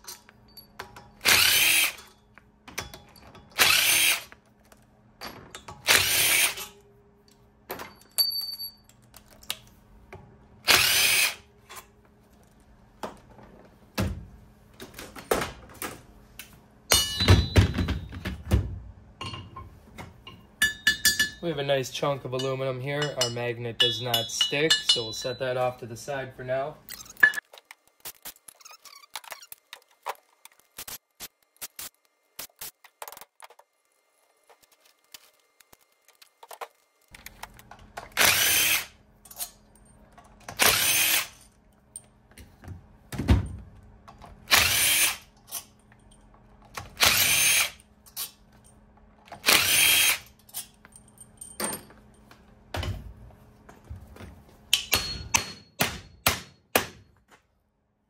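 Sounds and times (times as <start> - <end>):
cordless drill driving bolts: 1.2 - 2.0, 3.6 - 4.3, 5.8 - 6.7, 10.7 - 11.4, 38.1 - 38.9, 40.5 - 41.4, 44.5 - 45.2, 47.0 - 47.8, 49.4 - 50.3.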